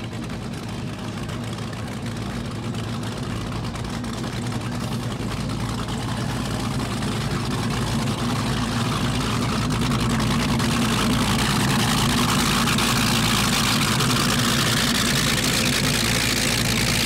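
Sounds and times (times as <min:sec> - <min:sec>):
powerboat engines idling: 0:00.0 - 0:17.0.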